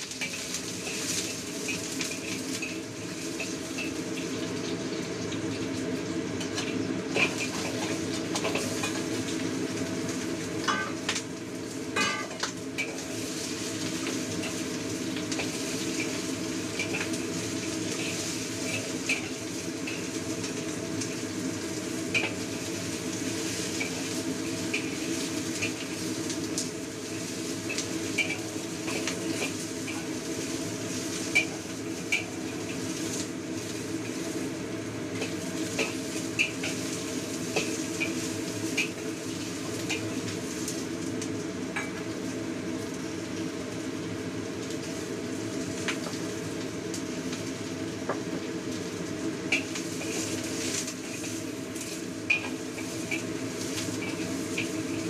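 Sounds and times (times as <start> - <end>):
utensils scraping a wok: 0.0 - 4.3, 6.4 - 9.1, 12.0 - 21.2, 27.1 - 34.4, 35.1 - 40.4, 49.5 - 55.0
meat sizzling: 0.0 - 55.0.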